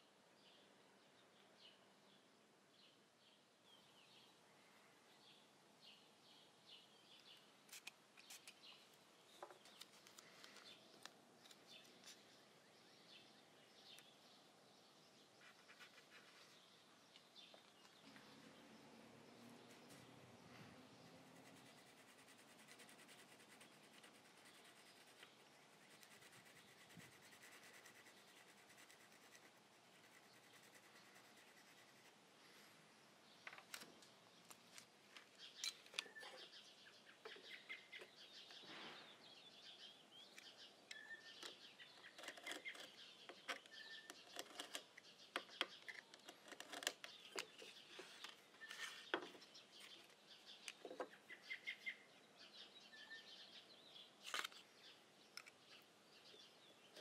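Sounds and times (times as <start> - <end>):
scratching on wooden tabletop: 15.4 - 16.6, 21.1 - 32.1, 41.4 - 50.0
bird chirps: 35.3 - 57.0.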